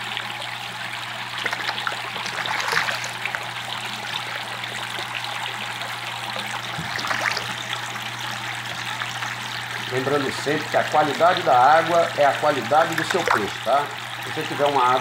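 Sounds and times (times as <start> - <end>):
fish splashing in water: 0.8 - 9.9, 12.5 - 14.3.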